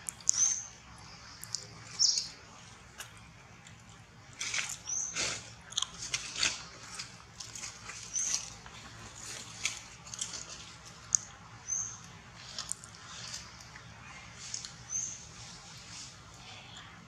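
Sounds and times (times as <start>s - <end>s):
dry leaf crackling: 0.0s - 16.7s.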